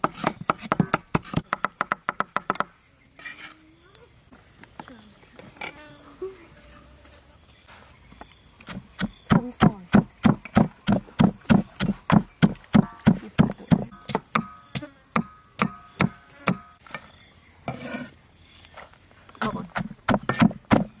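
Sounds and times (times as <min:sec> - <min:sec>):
pestle thudding in mortar: 0:08.7 - 0:16.6, 0:19.7 - 0:21.0.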